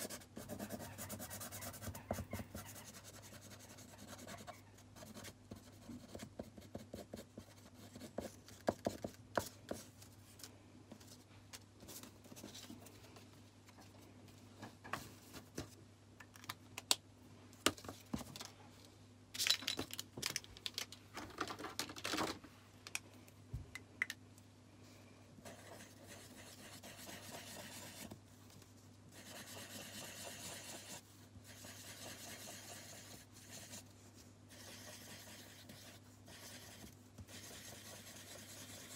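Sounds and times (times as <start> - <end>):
felt-tip pen scratching paper: 29.2 - 33.8, 34.5 - 38.9.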